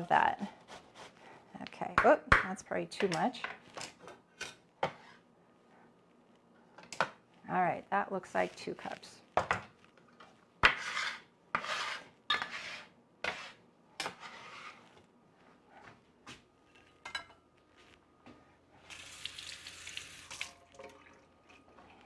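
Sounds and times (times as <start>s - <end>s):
kitchenware clattering and scraping: 16.7s - 17.4s.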